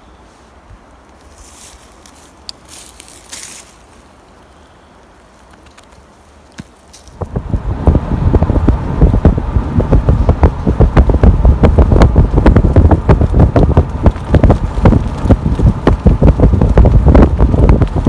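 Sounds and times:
wind buffeting microphone: 7.1 - 18.0.

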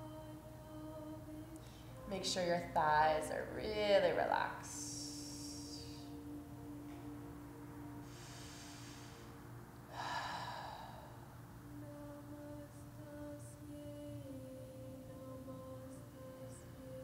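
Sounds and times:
soft ambient music: 0.0 - 17.0
person breathing: 1.6 - 2.1, 8.0 - 11.3.

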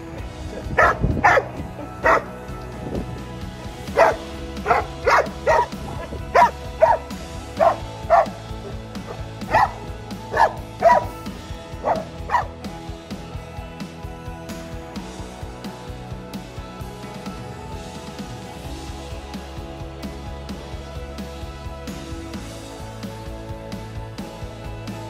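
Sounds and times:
background music: 0.0 - 25.0
dog barking: 0.8 - 2.3, 3.9 - 8.4, 9.1 - 11.1, 11.8 - 12.5.

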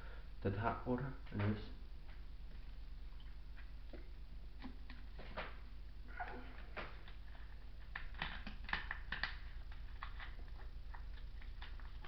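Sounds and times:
steady low hum: 0.0 - 12.0
mouth and lip clicks: 6.8 - 12.0.

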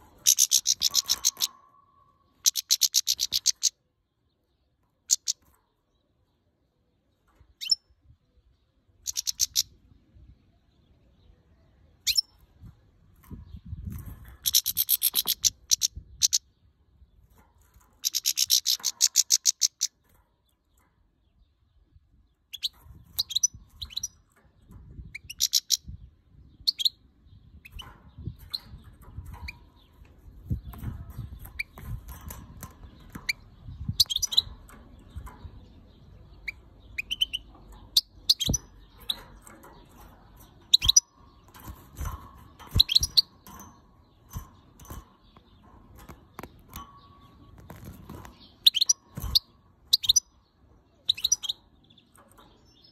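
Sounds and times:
bird chattering high notes: 0.3 - 1.7.

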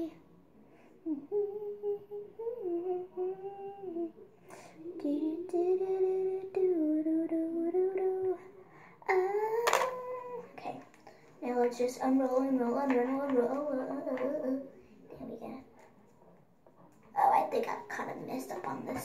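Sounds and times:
girl humming a slow tune: 0.9 - 10.6.

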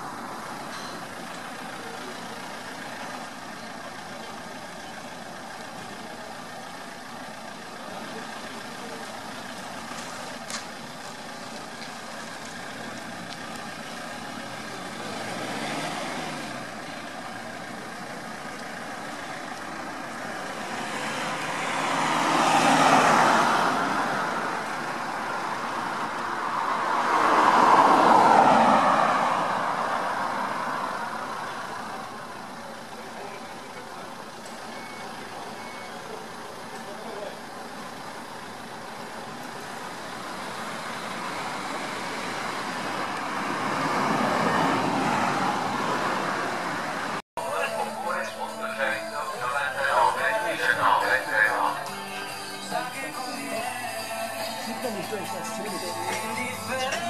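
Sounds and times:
cars passing by: 0.0 - 57.0.

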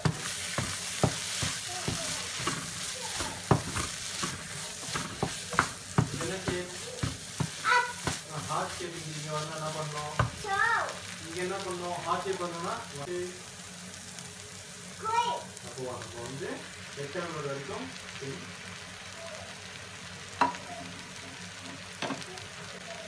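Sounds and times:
wooden spatula scraping a pan: 0.0 - 10.5
food sizzling in a frying pan: 0.0 - 23.0.

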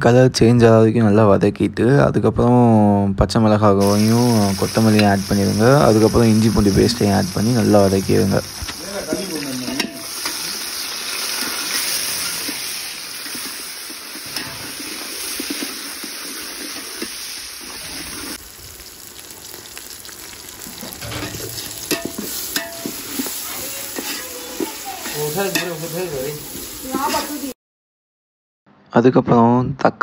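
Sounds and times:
onions sizzling in hot oil: 3.8 - 27.6
spatula scraping pot: 8.5 - 18.4, 20.8 - 26.1.

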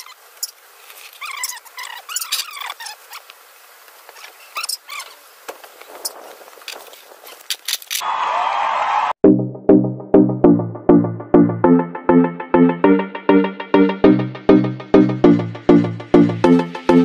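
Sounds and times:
small birds chirping: 0.0 - 3.3, 4.1 - 6.2
electronic music: 9.2 - 17.0.

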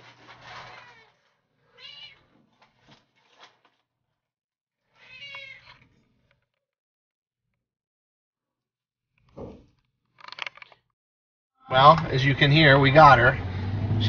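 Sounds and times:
cat meowing: 0.6 - 2.3, 4.8 - 5.9.

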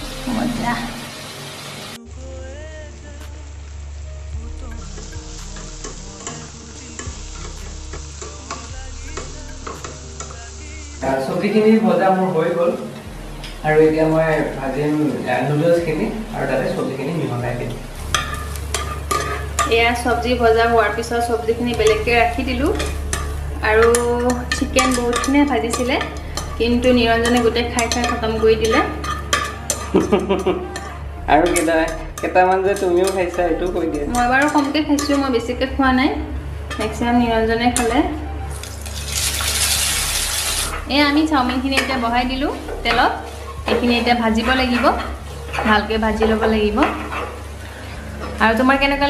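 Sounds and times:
vegetables and eggs sizzling: 0.0 - 49.0
metal spatula scraping a wok: 18.0 - 19.8
metal spatula scraping pan: 18.0 - 19.8, 22.6 - 30.0.

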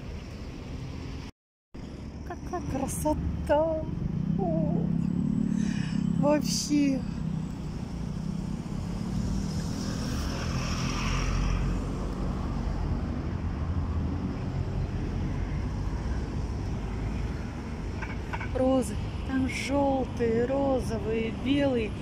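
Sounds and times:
hum of passing cars: 0.0 - 22.0
vehicle passing loudly: 3.0 - 17.8.

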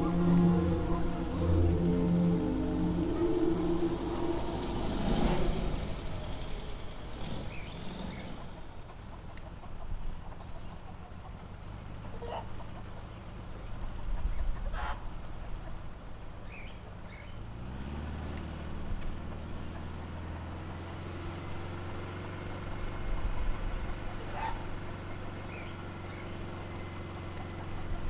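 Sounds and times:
low rumbles: 0.0 - 8.8
car engine running: 0.0 - 28.0
animal calls: 24.2 - 24.7.

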